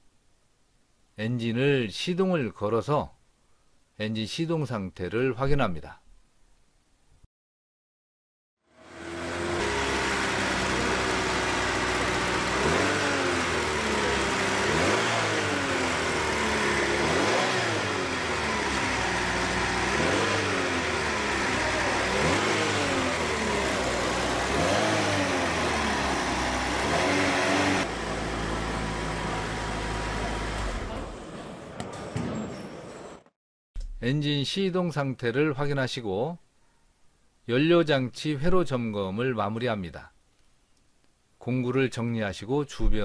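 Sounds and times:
car engine revving: 8.8s - 31.3s.

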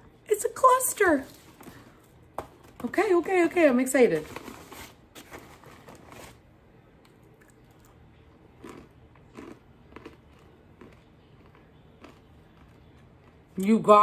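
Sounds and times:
person chewing crunchy food: 7.1s - 13.5s.

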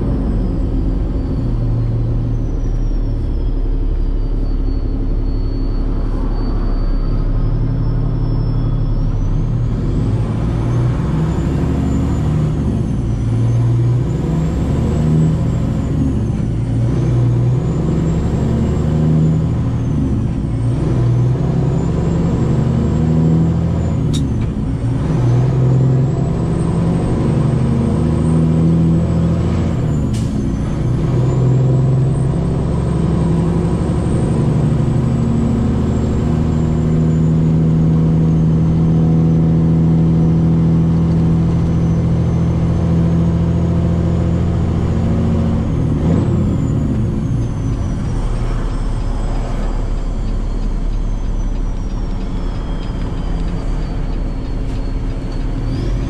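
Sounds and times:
diesel truck engine pulling: 0.0s - 56.0s.

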